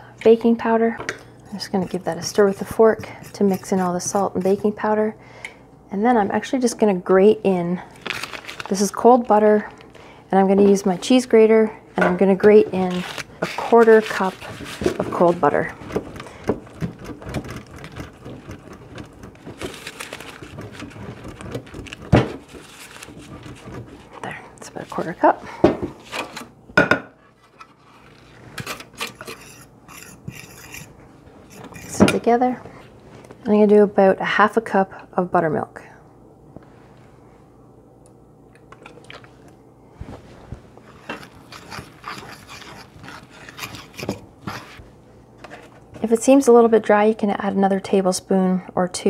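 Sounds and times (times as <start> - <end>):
butter grated on metal grater: 1.6 - 4.8, 12.7 - 24.2, 29.0 - 30.9, 41.0 - 44.8
fork scraping dough in bowl: 1.6 - 4.8, 12.7 - 25.2, 29.0 - 32.0, 40.9 - 44.8.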